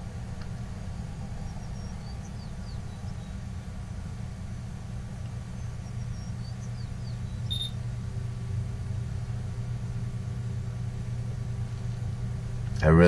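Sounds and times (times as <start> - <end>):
low background hum: 0.0 - 13.0
short high-pitched beep: 7.5 - 7.8.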